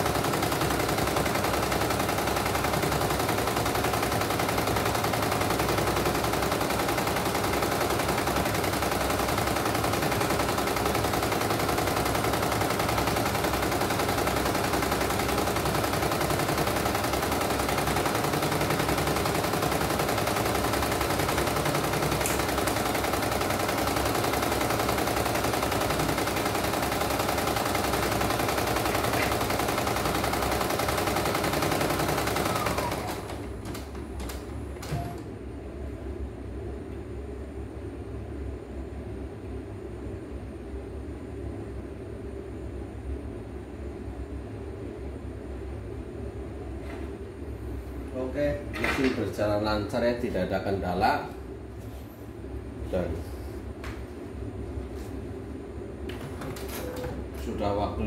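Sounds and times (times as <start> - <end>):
embroidery machine needle clatter: 0.0 - 35.1.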